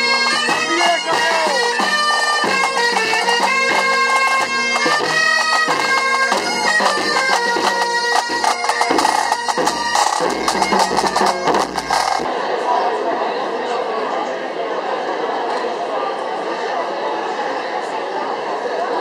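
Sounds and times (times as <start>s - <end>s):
bagpipe melody over drone: 0.0s - 12.3s.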